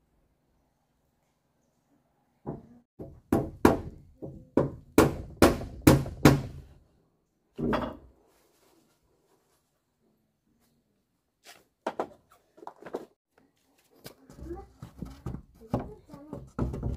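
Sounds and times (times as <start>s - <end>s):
tool knocking on wood: 14.9s - 16.9s.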